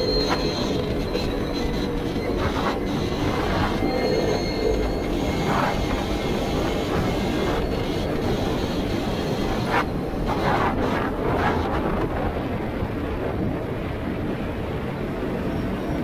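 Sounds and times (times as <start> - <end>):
wind: 0.0 - 16.0
ground rumble: 9.8 - 14.6.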